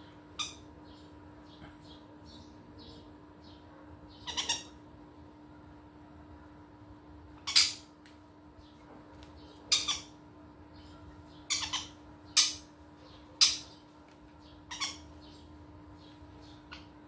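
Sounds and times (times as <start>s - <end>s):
parrots squawking: 0.4s - 0.7s, 4.1s - 4.8s, 7.4s - 7.9s, 9.6s - 10.2s, 11.4s - 12.7s, 13.4s - 13.8s, 14.6s - 15.4s.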